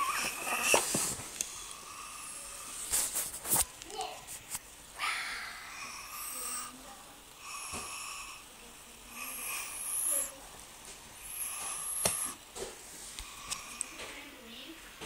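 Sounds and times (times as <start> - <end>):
toddler growling: 0.0 - 0.8.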